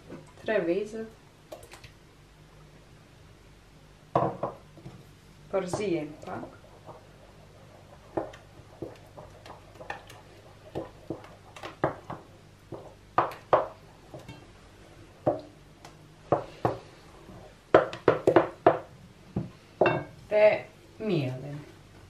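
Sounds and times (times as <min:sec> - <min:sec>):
wooden spoon stirring batter: 0:04.4 - 0:14.6.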